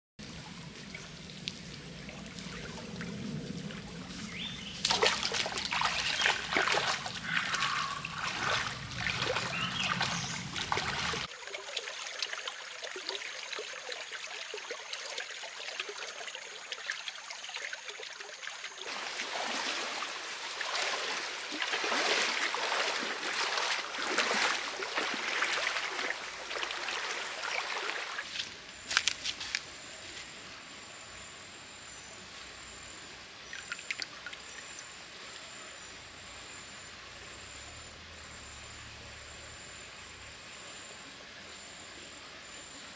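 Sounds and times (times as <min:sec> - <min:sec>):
creek water trickling over stones: 0:00.2 - 0:29.7, 0:33.4 - 0:35.5.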